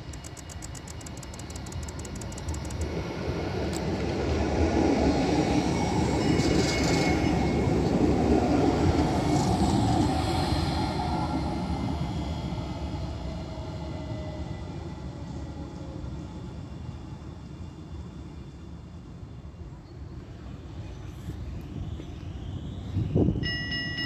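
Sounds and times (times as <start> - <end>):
tram passing: 0.0 - 24.0
high wheel squeal: 6.2 - 7.8.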